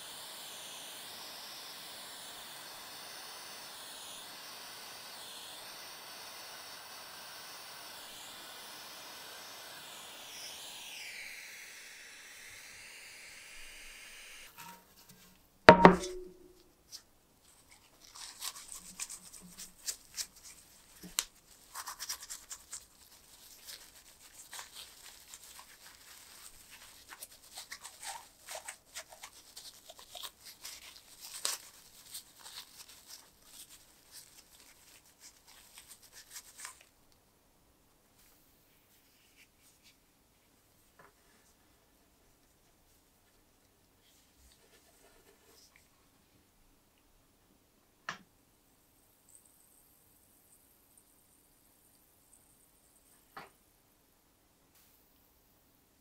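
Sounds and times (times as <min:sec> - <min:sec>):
torch flame hissing: 0:00.0 - 0:14.6
loud sharp knock: 0:15.7 - 0:16.6
cloth rubbing on metal: 0:17.6 - 0:36.9.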